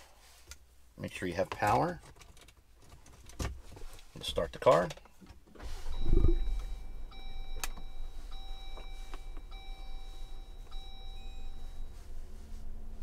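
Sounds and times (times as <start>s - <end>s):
dashboard warning chime: 5.8s - 12.6s.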